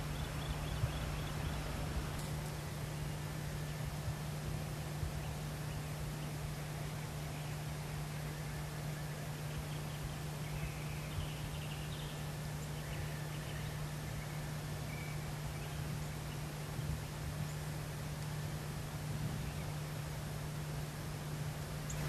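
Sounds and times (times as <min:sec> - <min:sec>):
faint bird chirps: 0:00.0 - 0:04.1, 0:05.0 - 0:17.8, 0:21.8 - 0:22.0
constant hiss: 0:00.0 - 0:22.0.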